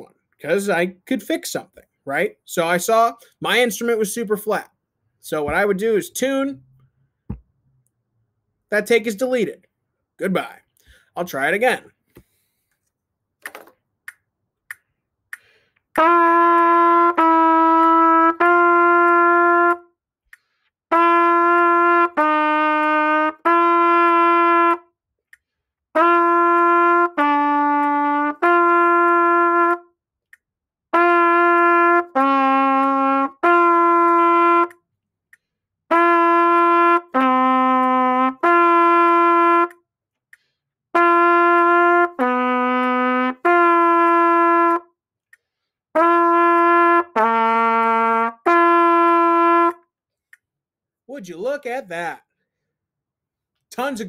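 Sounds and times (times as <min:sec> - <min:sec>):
metronome clicks: 0:13.4 - 0:16.7
trumpet playing long tones: 0:16.0 - 0:20.0, 0:20.9 - 0:24.9, 0:25.9 - 0:29.9, 0:30.9 - 0:34.8, 0:35.9 - 0:39.8, 0:40.9 - 0:45.0, 0:45.9 - 0:49.9.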